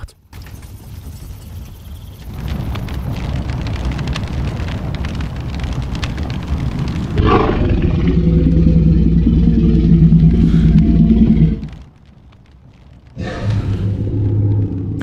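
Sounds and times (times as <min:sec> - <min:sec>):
crackling rumble: 0:00.1 - 0:15.0
loud low drone: 0:07.2 - 0:11.8.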